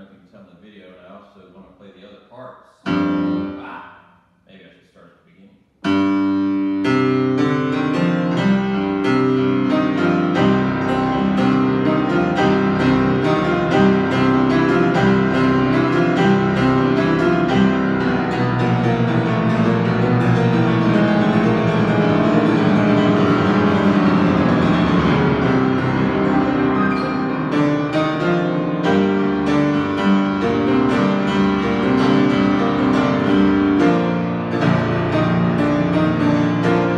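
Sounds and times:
grand piano playing: 2.8 - 3.8, 5.8 - 36.9.

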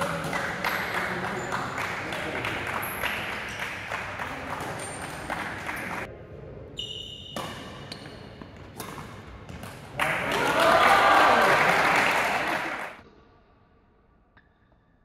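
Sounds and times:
racket hitting shuttlecock: 0.0 - 6.1, 7.3 - 10.3
shoes squeaking on court: 2.8 - 6.1, 6.8 - 10.0.

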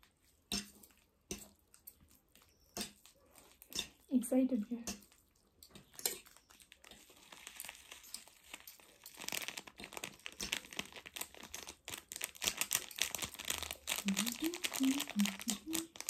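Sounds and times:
plastic packaging crinkling: 5.1 - 16.0.

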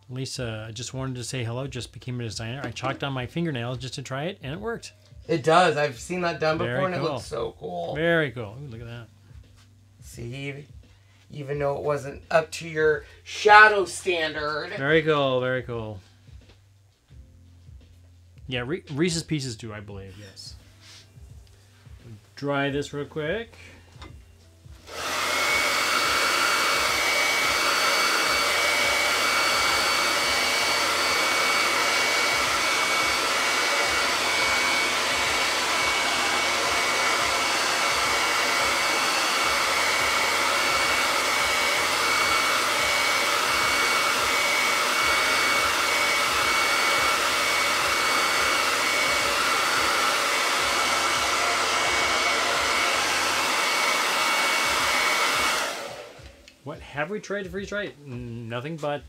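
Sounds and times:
hair dryer running: 12.7 - 15.0, 24.0 - 56.6.

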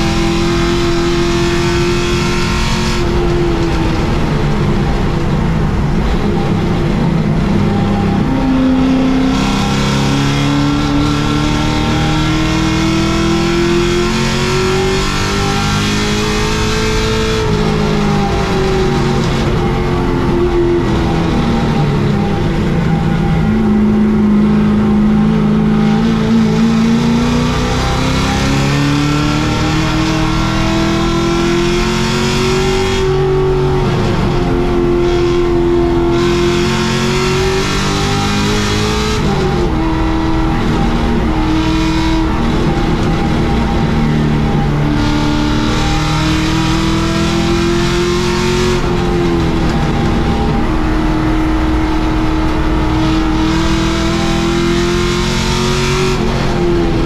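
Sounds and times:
race car engine accelerating: 0.0 - 57.0
road and wind noise: 0.0 - 57.0.

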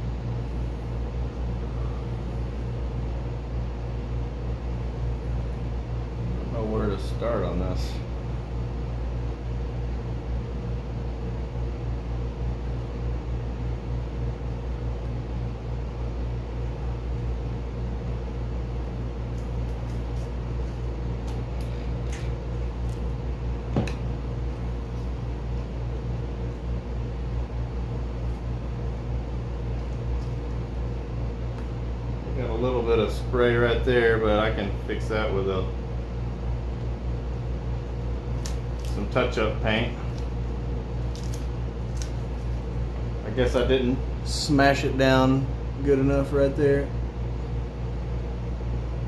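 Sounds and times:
masking tape being peeled: 19.3 - 23.2, 38.3 - 39.1, 40.1 - 42.7.

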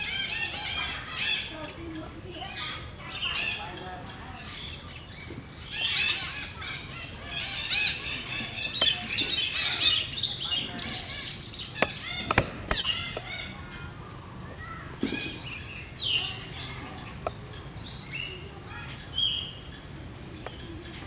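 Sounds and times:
small birds chirping: 0.0 - 21.0
sharp clicks: 11.8 - 13.3.

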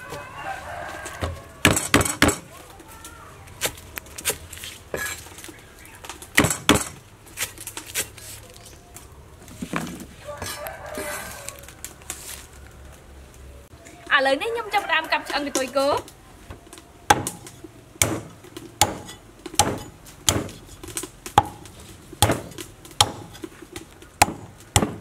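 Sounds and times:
cleaver chopping on wooden board: 17.1 - 20.6, 21.3 - 23.4, 24.2 - 25.0.

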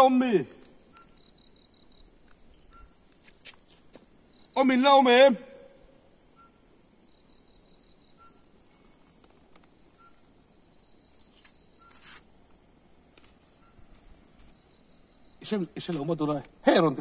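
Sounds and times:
night insects chorus: 0.0 - 17.0
brief rustle: 11.3 - 12.3.

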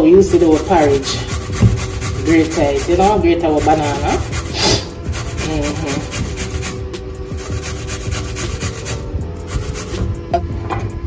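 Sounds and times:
banana grated on metal grater: 0.1 - 10.0.

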